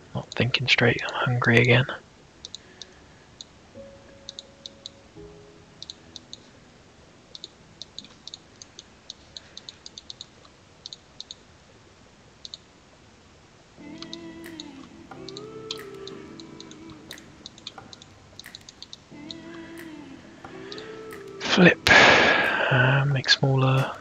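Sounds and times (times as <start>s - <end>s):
faint music: 0.0s - 9.8s, 13.7s - 24.0s
computer mouse clicking: 2.4s - 3.5s, 7.3s - 11.4s, 12.4s - 12.6s, 14.0s - 19.9s.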